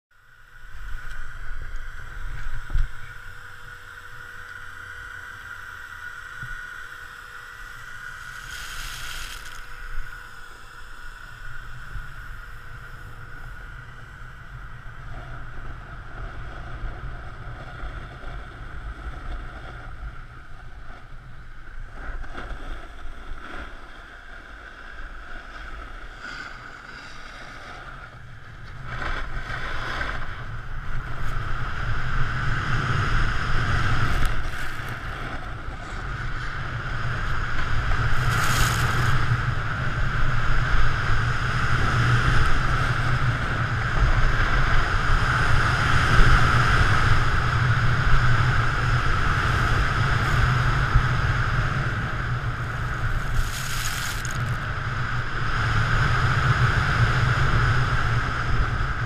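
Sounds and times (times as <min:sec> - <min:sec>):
wind rumbling on microphone: 0:00.2 - 0:59.0
snowboard sliding over snow: 0:05.1 - 0:13.9, 0:14.5 - 0:59.0.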